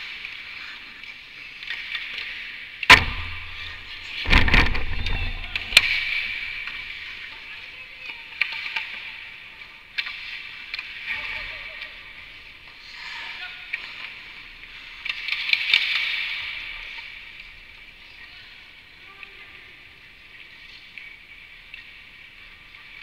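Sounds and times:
bang against rink boards: 2.9 - 6.9.

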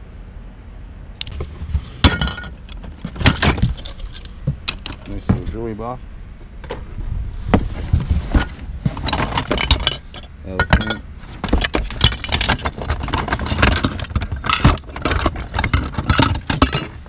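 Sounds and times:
trinkets clinking and rattling: 2.0 - 5.2, 8.4 - 17.0.

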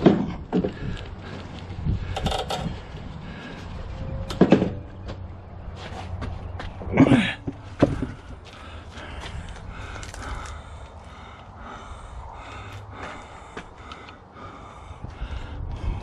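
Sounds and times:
metal knocks and clunks: 4.2 - 5.2, 6.8 - 8.2.

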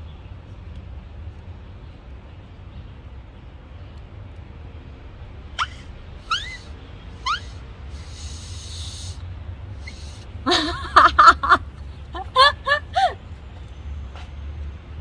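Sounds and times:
leaf whistle squeaking: 5.6 - 9.2
breathy rush of air: 11.7 - 13.3.

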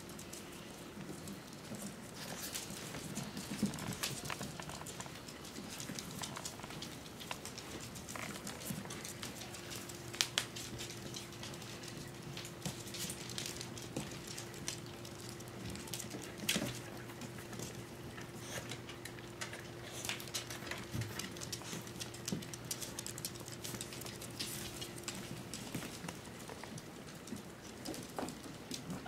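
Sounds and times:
puppy claws on wooden floor: 0.2 - 29.0.

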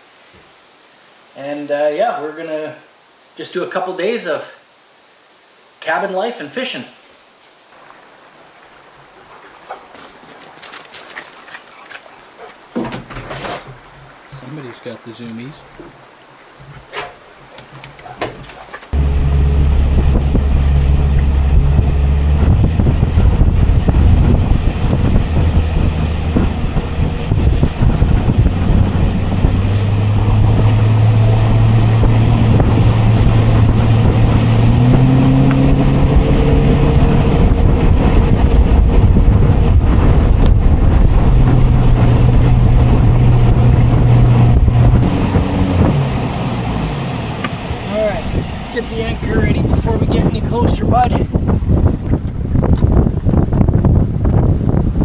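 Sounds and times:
outboard motor running: 15.7 - 54.1
wind buffeting microphone: 15.7 - 55.0.

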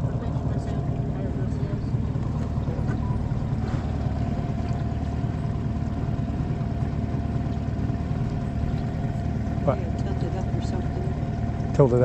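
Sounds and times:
outboard motor running: 0.0 - 12.0.

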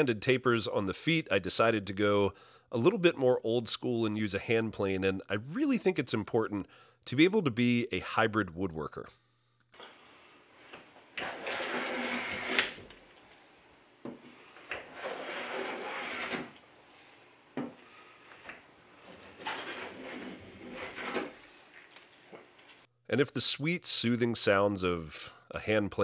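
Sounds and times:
hand plane cutting wood: 10.7 - 12.9, 14.2 - 16.6, 18.4 - 21.5.

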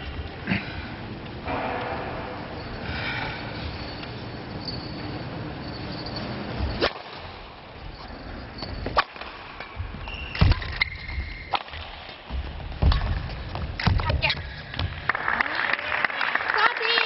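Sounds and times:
short high squeaks: 10.0 - 11.5.

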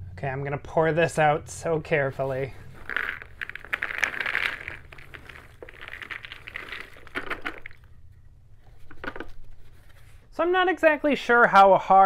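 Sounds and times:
puzzle pieces pouring onto table: 2.6 - 7.9.

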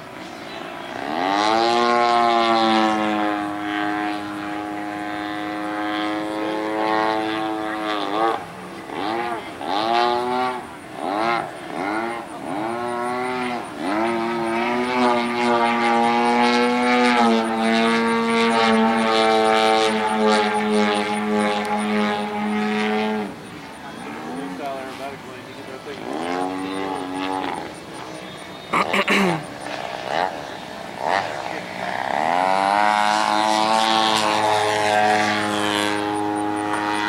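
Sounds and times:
model airplane engine droning: 0.0 - 37.0.

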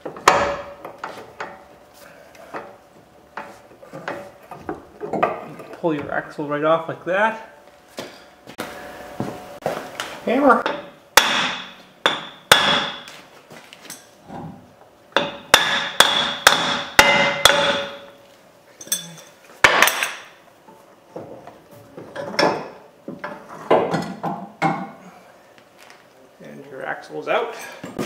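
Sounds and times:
hammer striking metal shaft: 15.2 - 18.2.

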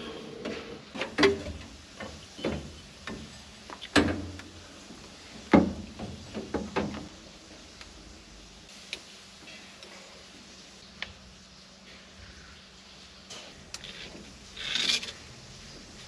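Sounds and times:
knocks and clunks of parts: 0.4 - 4.6, 5.4 - 7.2.

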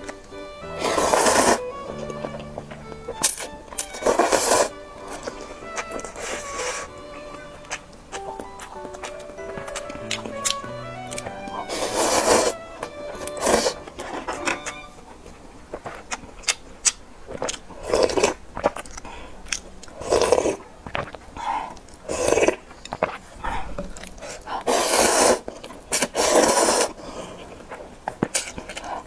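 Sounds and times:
sipping broth: 0.0 - 15.1
loud slurping of noodles: 0.8 - 1.6, 4.0 - 5.4, 6.0 - 6.9, 11.7 - 12.6, 13.2 - 14.1, 24.7 - 27.0
wet chewing: 0.8 - 12.6, 13.2 - 29.0.

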